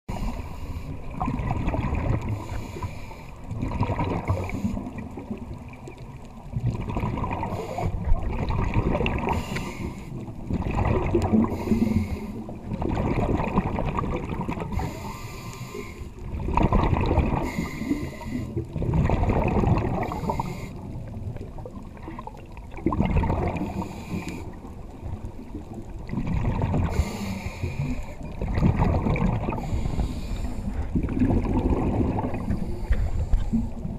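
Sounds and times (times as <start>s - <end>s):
diver breathing through regulator: 0.1s - 1.1s, 2.2s - 3.5s, 9.2s - 10.2s, 11.3s - 12.5s, 14.7s - 16.2s, 17.4s - 18.7s, 20.0s - 21.0s, 23.6s - 24.6s, 26.8s - 28.2s, 29.4s - 31.2s, 32.3s - 33.9s
exhaled bubbles gurgling: 0.1s - 33.9s.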